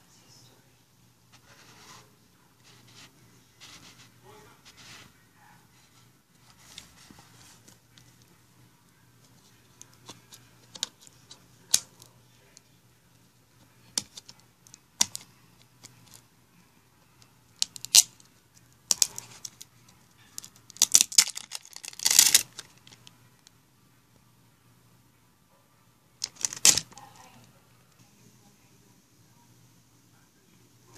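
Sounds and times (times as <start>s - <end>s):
label peeling crackle: 20.4s - 23.1s, 26.2s - 27.0s
plastic bottle clicking and crinkling: 26.2s - 26.9s.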